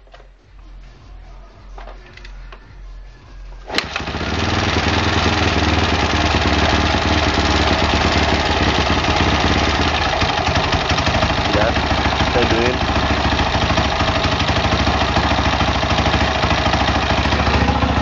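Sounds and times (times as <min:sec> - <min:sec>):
motorcycle engine running: 0:03.7 - 0:18.0.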